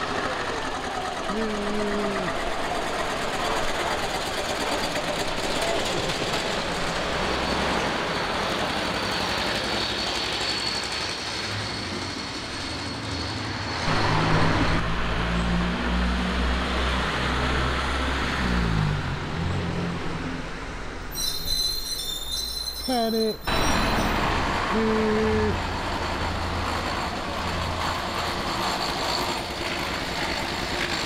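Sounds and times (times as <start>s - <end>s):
old car engine chugging: 0.0s - 7.7s.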